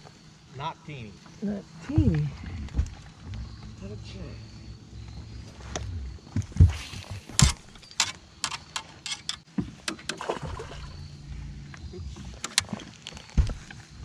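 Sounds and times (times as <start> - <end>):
low steady hum: 0.5 - 9.4, 10.1 - 14.0
sharp clicks and knocks: 6.4 - 10.2.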